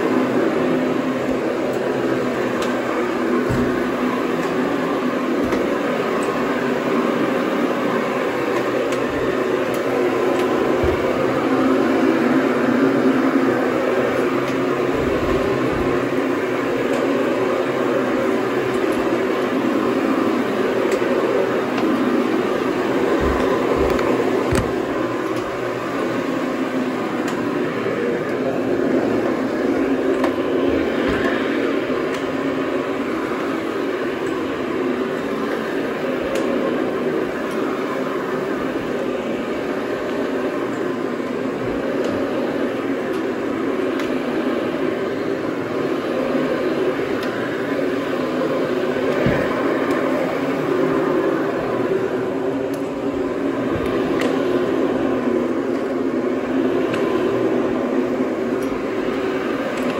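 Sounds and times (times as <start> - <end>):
machine droning: 0.0 - 59.9.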